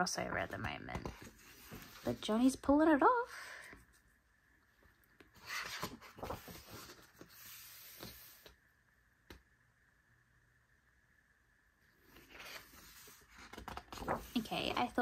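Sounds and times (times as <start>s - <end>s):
book pages rustling: 0.5s - 2.3s, 5.1s - 8.6s, 12.0s - 15.0s.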